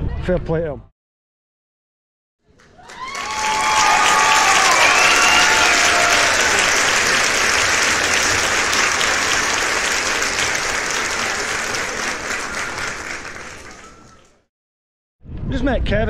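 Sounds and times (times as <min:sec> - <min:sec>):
crowd clapping: 0:02.4 - 0:14.5.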